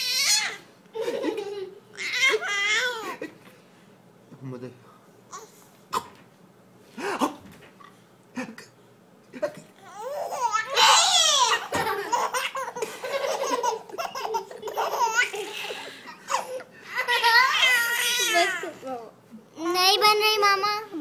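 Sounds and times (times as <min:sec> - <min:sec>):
baby laughing: 0:09.9 - 0:18.7.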